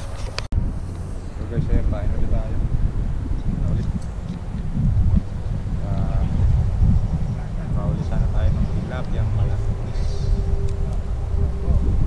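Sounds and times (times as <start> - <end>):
wind rumbling on microphone: 0.0 - 12.0
person speaking: 5.8 - 12.0.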